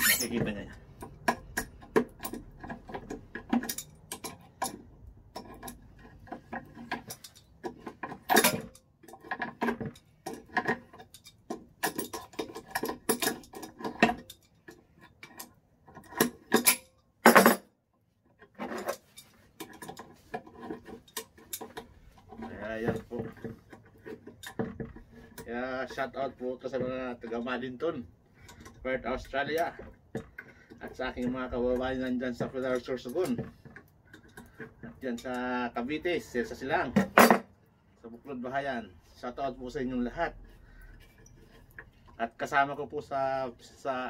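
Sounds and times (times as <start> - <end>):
hand tools clinking on metal vise: 0.0 - 17.7, 18.5 - 27.6.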